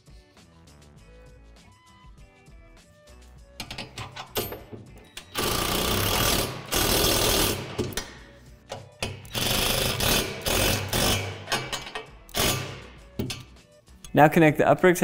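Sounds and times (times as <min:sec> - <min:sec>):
impact driver tightening bolts: 0:03.6 - 0:13.5
clicks of hardware handled: 0:13.2 - 0:14.2.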